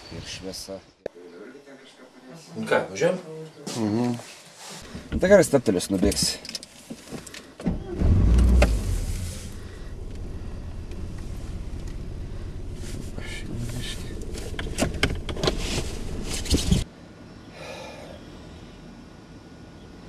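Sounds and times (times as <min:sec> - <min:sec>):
car engine idling: 0:06.1 - 0:16.8
sharp clicks and knocks: 0:13.7 - 0:16.8.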